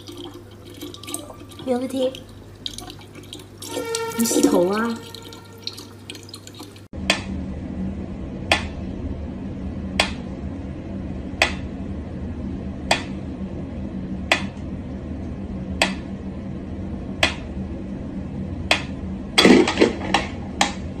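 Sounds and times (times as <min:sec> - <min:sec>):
tap water trickling: 0:00.0 - 0:06.9.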